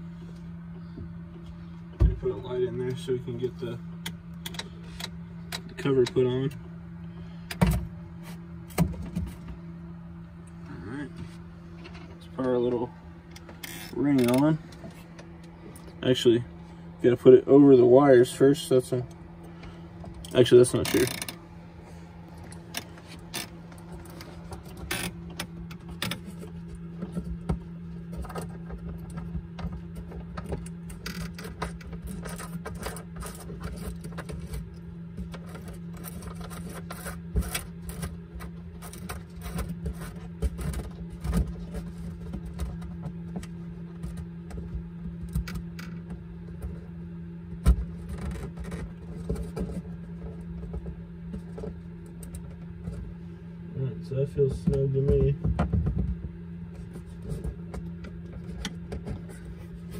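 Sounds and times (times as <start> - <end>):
steady low hum: 0.0 - 59.9
small clicks taps and scrapes: 11.2 - 16.0, 19.1 - 21.4, 22.3 - 46.9, 47.5 - 53.2, 54.6 - 59.9.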